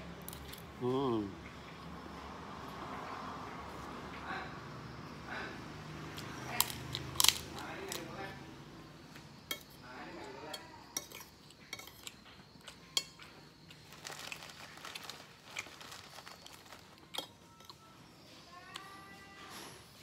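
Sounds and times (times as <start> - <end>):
cutlery clinking on ceramic bowl: 9.5 - 9.8, 10.5 - 13.4.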